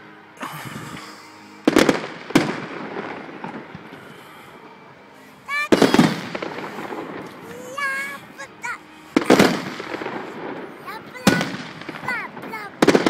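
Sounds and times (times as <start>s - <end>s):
rumble of fireworks: 1.6s - 4.1s, 5.5s - 13.0s
fireworks bangs: 1.7s - 4.0s, 5.5s - 13.0s.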